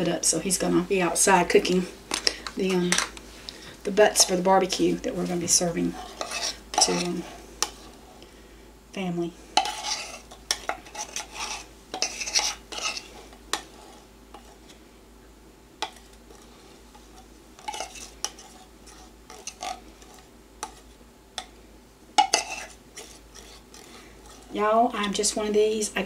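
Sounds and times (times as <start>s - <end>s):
metal spoon scraping a can: 5.9s - 8.0s, 9.6s - 14.6s, 17.1s - 20.8s, 22.2s - 24.5s.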